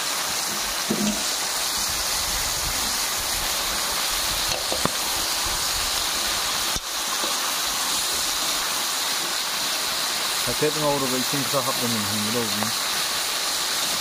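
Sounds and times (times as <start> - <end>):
meat sizzling in a wok: 0.0 - 14.0.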